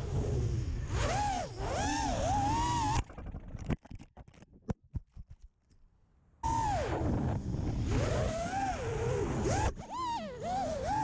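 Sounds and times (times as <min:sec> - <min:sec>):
drone motors whining: 0:00.0 - 0:03.5, 0:06.4 - 0:11.0
rumbling wind noise: 0:06.5 - 0:09.6.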